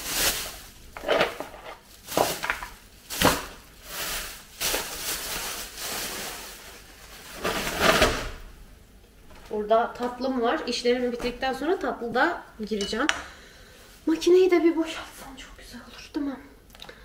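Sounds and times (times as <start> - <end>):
plastic bag rustling: 0.0 - 8.6.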